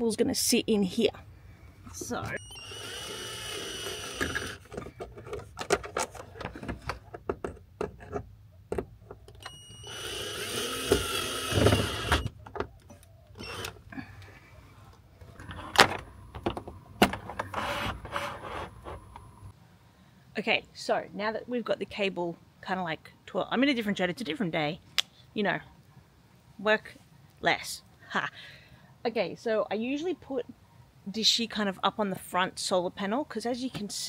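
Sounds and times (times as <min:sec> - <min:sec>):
cordless drill driving a screw: 0:02.4 - 0:04.7, 0:09.5 - 0:12.3, 0:13.4 - 0:13.8
handling clicks and knocks: 0:04.6 - 0:09.5.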